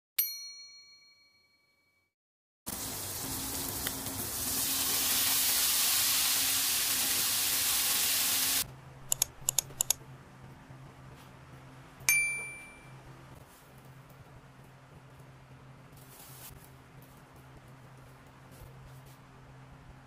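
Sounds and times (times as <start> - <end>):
broccoli sizzling in hot pan: 2.7 - 8.6
chime ringing: 12.1 - 13.0.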